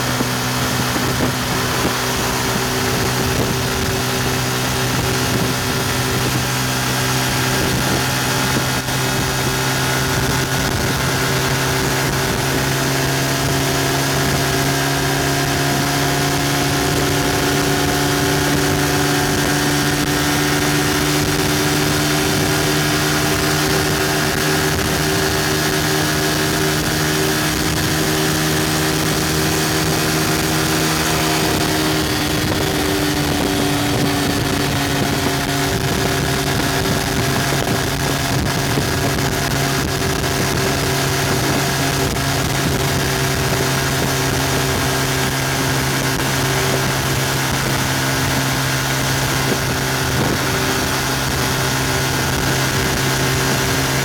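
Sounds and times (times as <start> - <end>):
motorcycle engine at high revs: 0.0 - 54.0
wind and road noise: 0.0 - 54.0.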